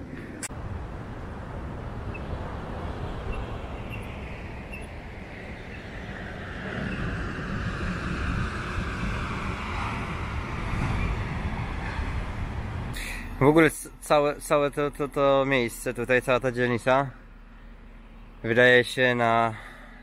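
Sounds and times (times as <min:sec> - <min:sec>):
wind on microphone: 0:00.0 - 0:13.0
vehicle passing: 0:00.0 - 0:13.4
distant surf: 0:00.0 - 0:19.8.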